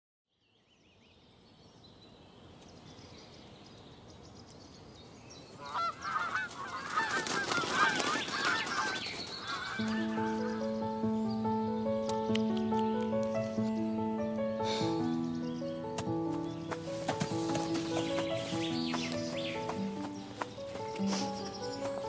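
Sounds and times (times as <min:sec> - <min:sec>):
geese honking: 0:05.6 - 0:11.0.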